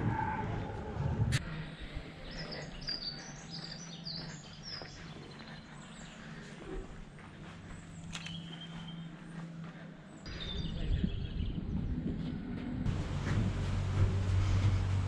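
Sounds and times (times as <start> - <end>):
low rumble: 0.0 - 2.4, 10.3 - 15.0.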